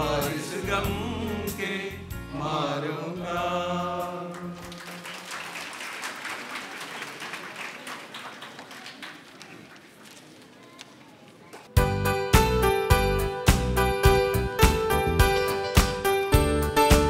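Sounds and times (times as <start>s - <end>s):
men's choir singing: 0.0s - 5.3s
audience applause: 4.3s - 10.4s
low instrumental backing: 11.8s - 17.0s.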